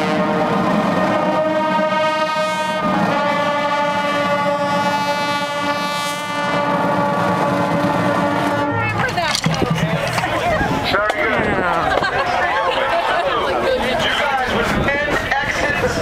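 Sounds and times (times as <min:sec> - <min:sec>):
brass band holding chords: 0:00.0 - 0:10.2.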